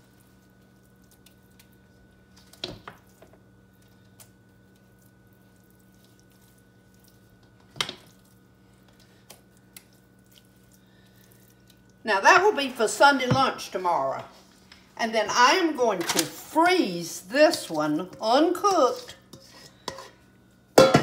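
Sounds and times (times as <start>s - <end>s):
metal spoon scraping dressing: 18.1s - 20.2s
spoon knocking on dish: 20.8s - 21.0s.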